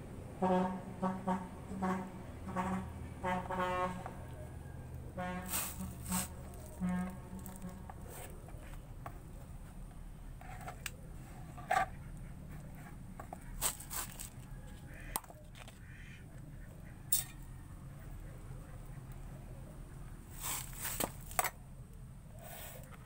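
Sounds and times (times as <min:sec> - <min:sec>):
hands tapping and rustling fruit: 0:05.4 - 0:10.0, 0:10.7 - 0:15.8, 0:20.3 - 0:21.5.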